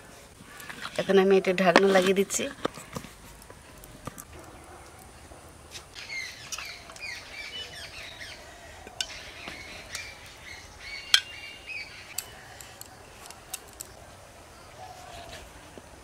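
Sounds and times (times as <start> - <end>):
birds chirping and squawking: 5.9 - 15.5.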